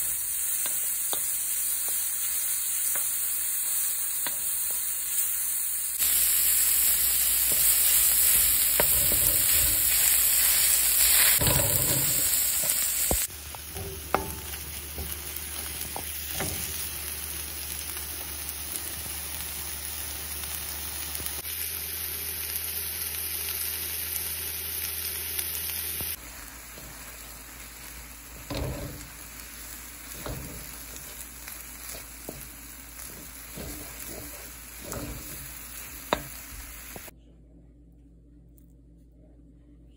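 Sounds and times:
food sizzling in oil: 0:00.0 - 0:37.1
wooden spatula scraping pan: 0:31.8 - 0:36.5.

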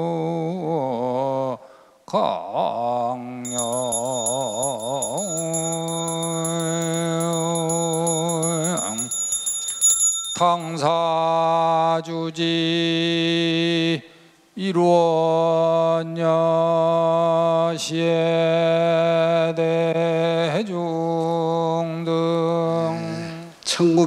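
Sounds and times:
man chanting: 0:00.0 - 0:09.1, 0:10.4 - 0:24.0
handbell shaken rapidly: 0:03.5 - 0:10.9.

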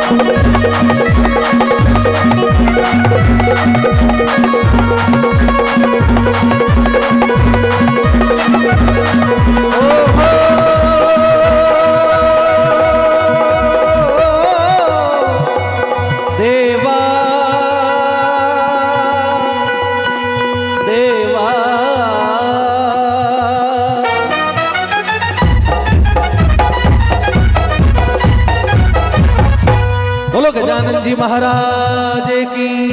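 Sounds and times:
held wavering melody line: 0:00.0 - 0:16.7
dholak drumming: 0:00.0 - 0:32.9
harmonium: 0:00.0 - 0:32.9
keyboards: 0:00.0 - 0:32.9.

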